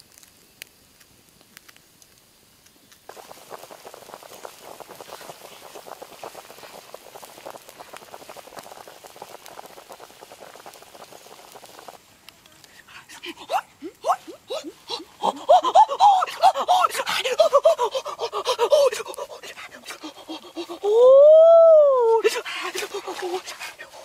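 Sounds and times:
water boiling hard: 3.1 - 12.1, 12.8 - 24.0
person gasping cries: 12.9 - 24.0.

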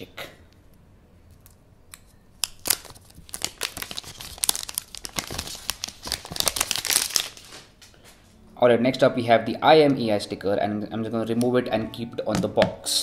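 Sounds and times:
plastic wrap crinkling: 2.4 - 8.0.

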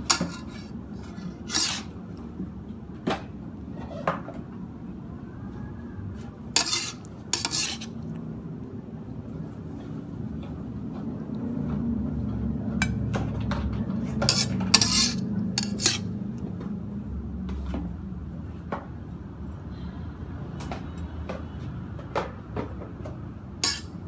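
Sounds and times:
metal spatula scraping wok: 0.0 - 2.0, 6.5 - 8.0, 14.0 - 16.2, 23.6 - 24.0.

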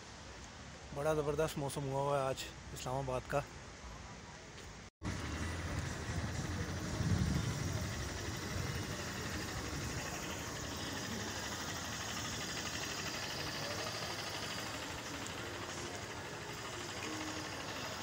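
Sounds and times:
steady traffic hiss: 0.0 - 18.0
car engine running: 5.0 - 18.0.

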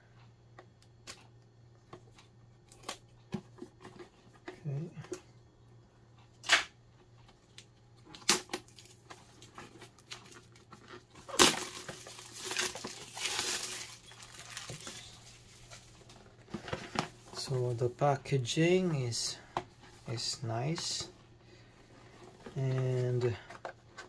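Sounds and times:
plastic shrink wrap crinkling: 8.5 - 17.5.

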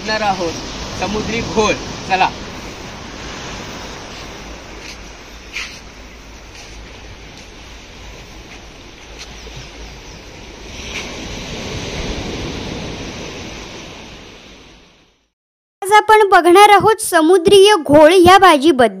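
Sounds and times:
surf washing against rocks: 0.0 - 15.0
wind rumbling on microphone: 0.0 - 15.2.

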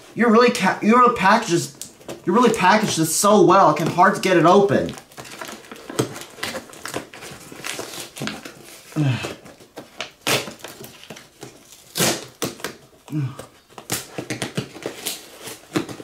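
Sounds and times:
packing tape ripping: 3.8 - 16.0
person grunting: 9.0 - 9.4, 13.1 - 13.5.

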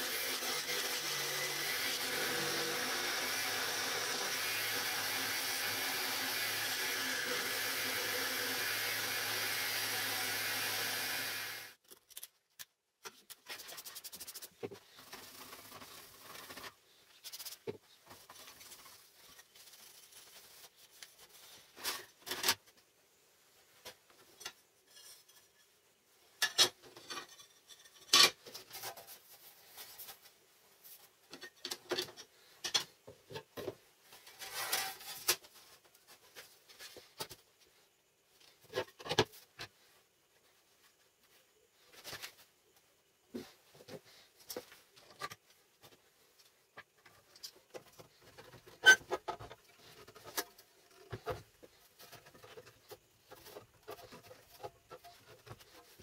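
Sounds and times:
reciprocating saw cutting aluminium: 0.0 - 11.8.

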